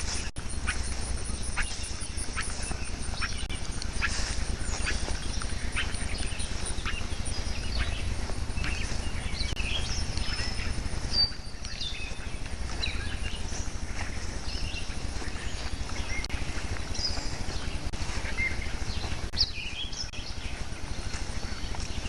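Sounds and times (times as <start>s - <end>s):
small birds chirping: 0.0s - 22.0s
steady low rumble: 0.0s - 22.0s.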